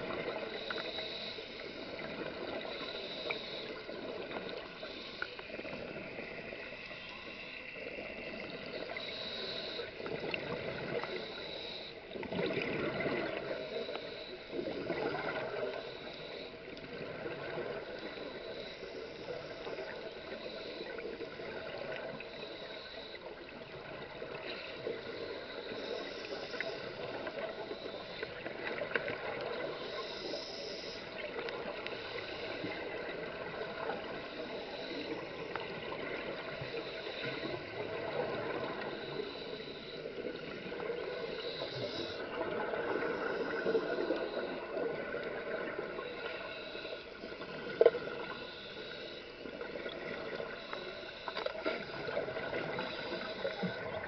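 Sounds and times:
underwater regulator bubbles gurgling: 0.0 - 54.0.

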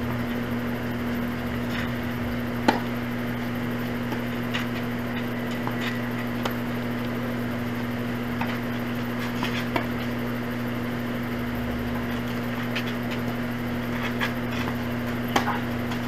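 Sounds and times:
steady low hum: 0.0 - 16.0
tennis ball struck by rackets: 2.6 - 3.0, 6.4 - 6.6, 9.2 - 10.0, 15.3 - 16.0.

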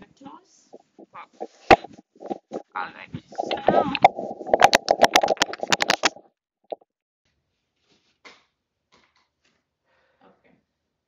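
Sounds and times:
clothing rustling and crackling: 0.7 - 6.2.

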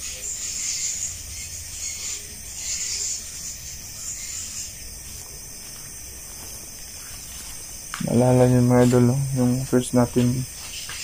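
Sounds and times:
night insects chirring: 0.0 - 11.0.

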